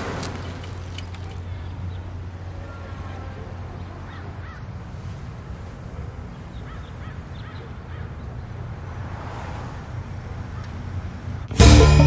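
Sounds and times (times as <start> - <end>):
crows cawing: 4.0 - 4.8, 6.6 - 8.2.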